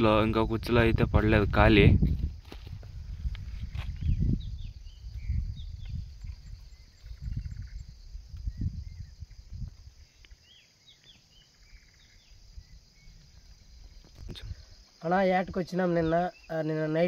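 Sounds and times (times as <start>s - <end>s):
crickets trilling: 0.0s - 17.0s
bird chirping: 3.7s - 17.0s.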